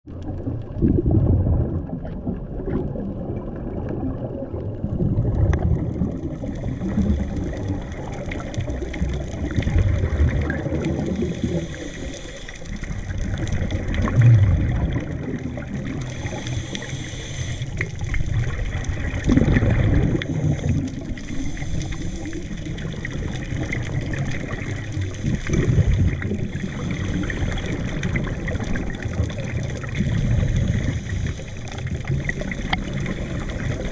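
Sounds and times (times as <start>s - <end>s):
low underwater rumble: 0.1s - 33.9s
scuba regulator bubble bursts: 0.2s - 12.2s, 12.8s - 17.0s, 17.7s - 33.9s.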